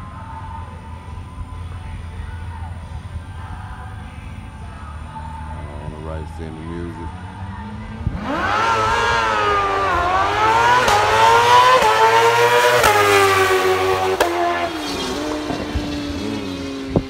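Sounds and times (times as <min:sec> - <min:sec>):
motorcycle engine upshifting: 0:05.2 - 0:17.0.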